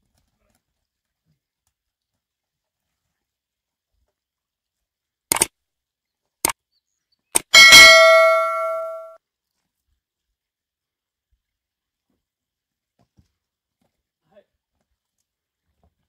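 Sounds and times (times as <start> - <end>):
notification bell ding: 7.6 - 9.2.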